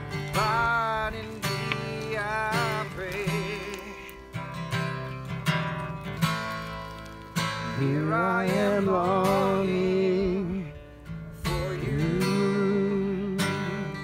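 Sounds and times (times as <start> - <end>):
man singing with vibrato: 0.0 - 4.4, 7.6 - 14.0
acoustic guitar strumming: 0.0 - 14.0.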